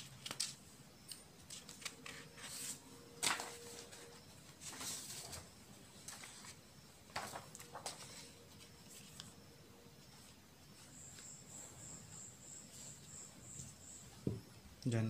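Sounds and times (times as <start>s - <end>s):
paper rustling: 1.4s - 9.4s.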